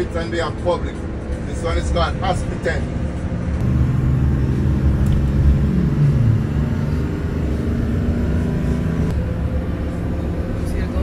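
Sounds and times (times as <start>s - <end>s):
minibus engine and road noise: 0.0s - 11.0s.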